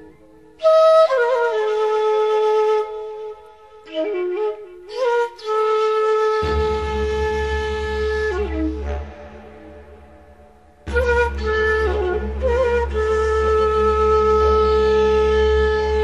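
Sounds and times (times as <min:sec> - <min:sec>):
solo flute: 0:00.0 - 0:16.0.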